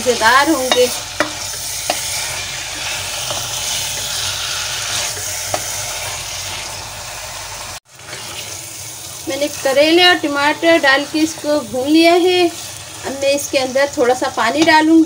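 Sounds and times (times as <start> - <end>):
spatula scraping pan: 0.0 - 6.8, 8.0 - 13.2
vegetables sizzling in oil: 0.0 - 15.0.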